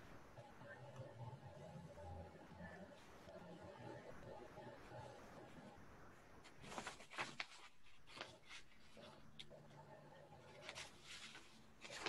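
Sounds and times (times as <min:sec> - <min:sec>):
paper rustling: 0:06.4 - 0:09.5, 0:10.4 - 0:12.0.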